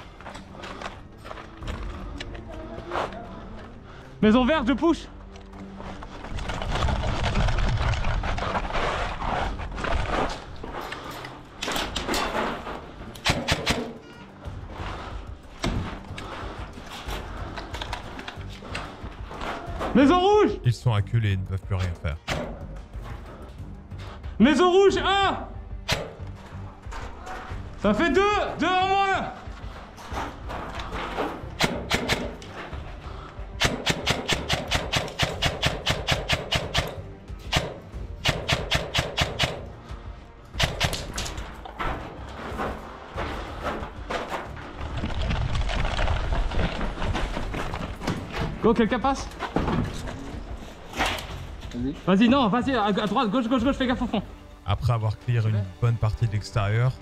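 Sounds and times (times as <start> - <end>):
airsoft rifle shots: 13.2 - 14.0, 31.6 - 32.4, 33.6 - 36.9, 37.5 - 39.7
footfalls: 41.2 - 48.8.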